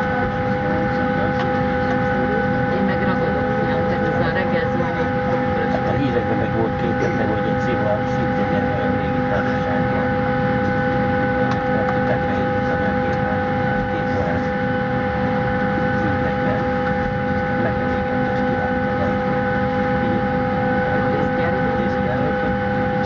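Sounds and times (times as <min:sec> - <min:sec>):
airliner cabin hum: 0:00.0 - 0:23.0
passengers talking faintly: 0:00.0 - 0:23.0.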